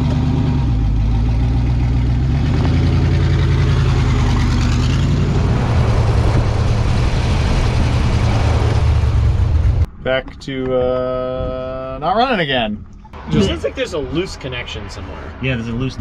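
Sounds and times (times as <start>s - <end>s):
engine running steadily: 0.0s - 9.9s.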